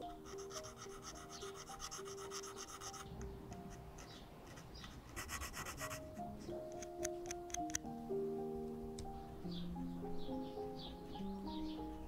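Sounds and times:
soft background music: 0.0 - 12.0
small file strokes on metal: 0.1 - 3.1.

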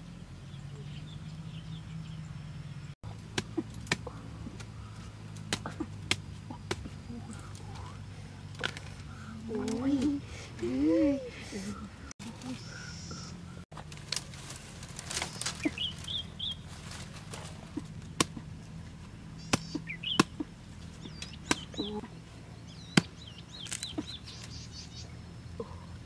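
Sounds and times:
steady low hum: 0.0 - 26.0
bird chirps: 0.4 - 3.0, 12.4 - 13.6, 15.2 - 16.7, 19.4 - 25.9
dry leaves and twigs crackling: 3.0 - 11.0, 11.6 - 26.0.

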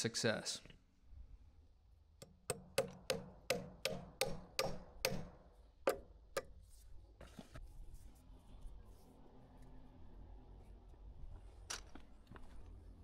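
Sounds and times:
hammer striking nail into wood: 2.2 - 6.6
faint handling noise: 6.6 - 9.8.

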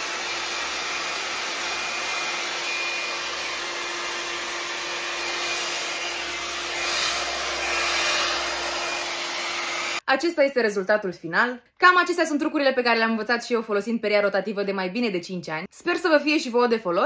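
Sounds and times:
hot-air brush blowing air: 0.0 - 10.0.

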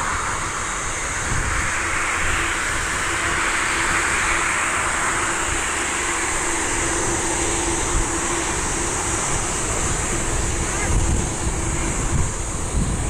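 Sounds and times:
jet engines rushing: 0.0 - 13.0.

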